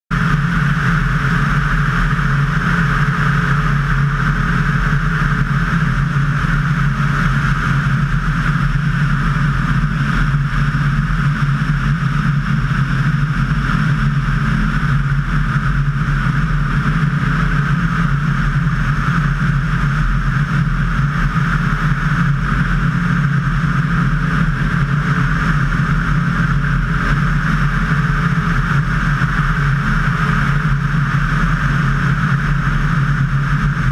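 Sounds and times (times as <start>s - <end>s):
propeller aircraft engine drone: 0.1s - 33.9s.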